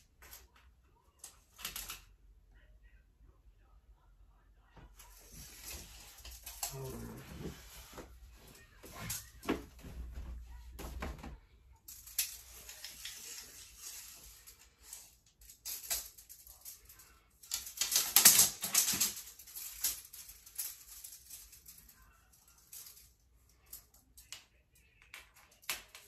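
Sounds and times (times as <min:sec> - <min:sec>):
tape measure blade rattling and clicking: 0:12.0 - 0:21.9.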